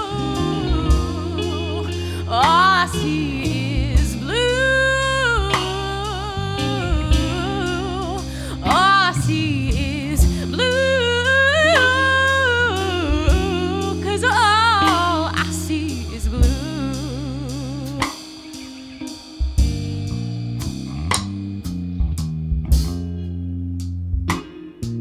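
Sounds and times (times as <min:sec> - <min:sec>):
woman singing: 0:00.0 - 0:18.8
electric bass: 0:00.0 - 0:25.0
electric guitar: 0:00.0 - 0:25.0.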